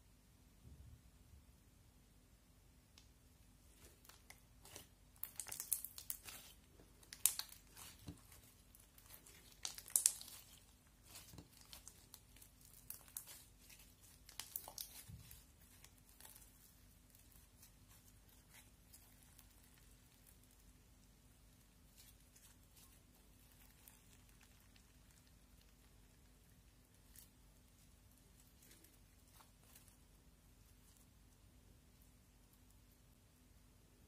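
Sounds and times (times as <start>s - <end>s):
sticky slime crackling and snapping: 3.8s - 20.8s.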